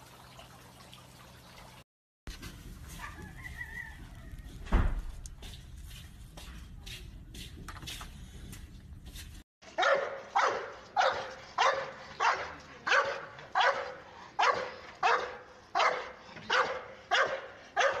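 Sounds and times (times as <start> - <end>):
large dog barking: 9.8 - 18.0.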